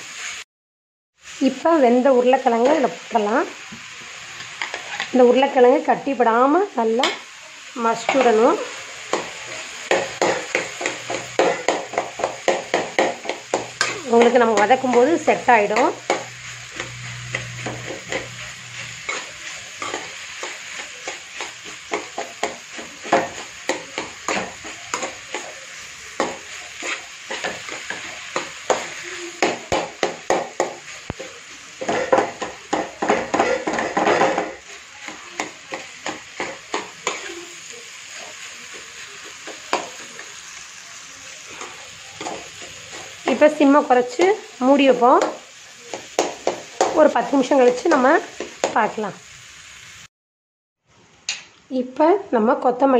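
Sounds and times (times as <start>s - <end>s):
frying sizzle: 0.0s - 0.5s, 1.2s - 50.1s, 50.8s - 52.9s
metal spatula scraping pan: 8.0s - 37.5s.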